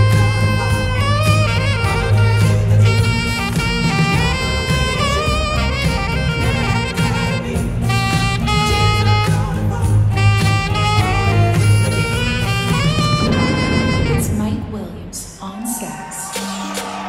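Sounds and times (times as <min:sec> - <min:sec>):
saxophone melody: 0:00.0 - 0:15.1
bass-heavy musical accompaniment: 0:00.0 - 0:15.5, 0:16.2 - 0:17.0.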